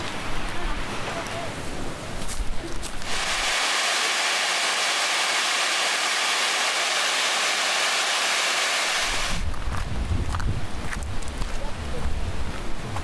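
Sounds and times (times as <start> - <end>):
waterfall rushing over boulders: 2.8 - 9.5.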